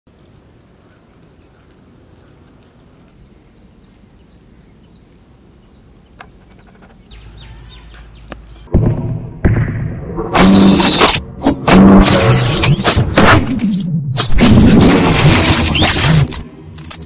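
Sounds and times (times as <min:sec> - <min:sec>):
high bird chirps: 0:07.0 - 0:08.7
sudden loud hit: 0:08.7 - 0:10.7.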